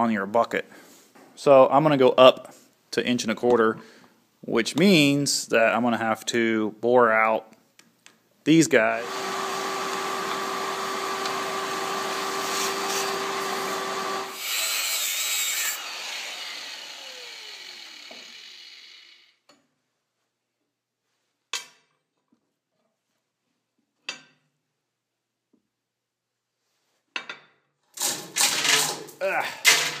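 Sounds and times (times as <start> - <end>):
power tool motor running: 9.0 - 19.4.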